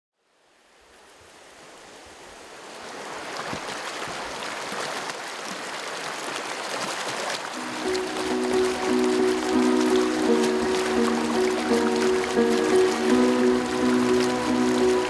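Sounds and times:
rushing water: 0:00.5 - 0:15.0
melody: 0:07.6 - 0:15.0.

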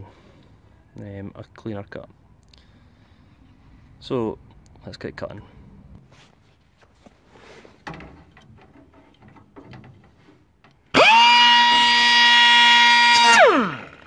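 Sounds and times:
faint knocks and handling noise: 0:05.9 - 0:10.9
pneumatic cut-off tool whine: 0:10.9 - 0:14.0.

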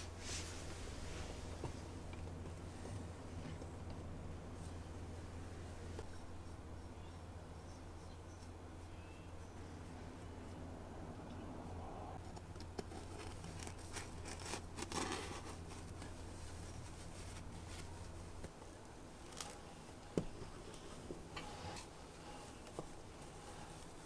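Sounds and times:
cloth and gloves rustling: 0:00.0 - 0:10.6, 0:12.2 - 0:24.0
low hum: 0:00.0 - 0:12.4.

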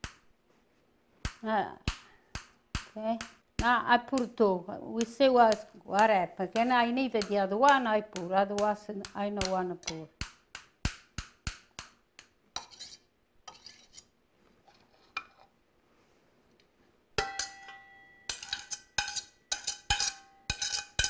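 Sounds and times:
clinks against steel bowl: 0:17.2 - 0:21.0.

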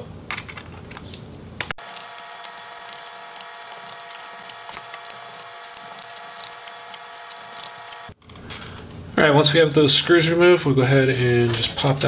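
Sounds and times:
screwdriver clicking and scraping: 0:01.8 - 0:08.2.

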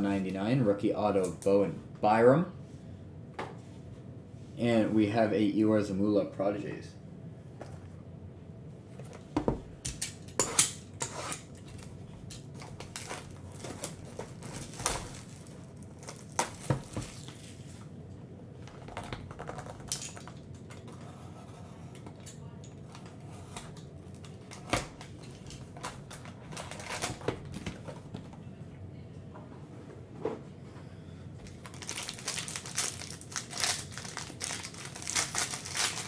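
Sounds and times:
plastic wrap crinkling: 0:11.7 - 0:17.8, 0:31.4 - 0:36.0.

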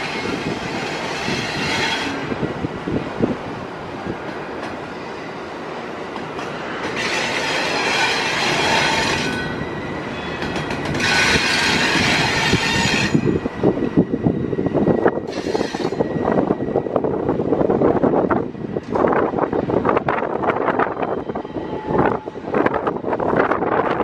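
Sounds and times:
freight train rumbling on rails: 0:00.0 - 0:24.0.

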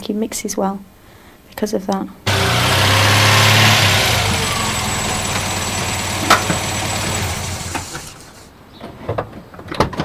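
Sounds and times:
engine running: 0:02.3 - 0:08.5.

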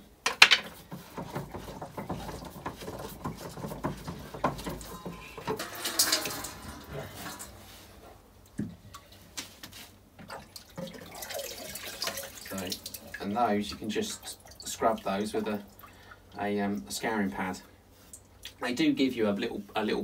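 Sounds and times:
water sloshing in bowl: 0:00.6 - 0:09.2, 0:10.2 - 0:16.4.

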